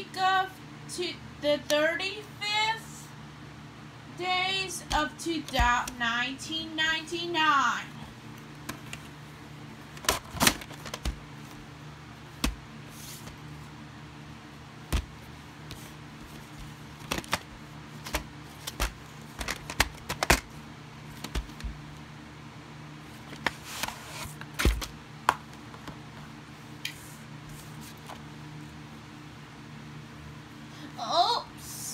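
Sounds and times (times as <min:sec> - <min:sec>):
faint steady hum: 0:00.0 - 0:31.9
plastic cassettes clicking and tapping: 0:09.9 - 0:11.2, 0:16.5 - 0:20.5, 0:21.2 - 0:21.8.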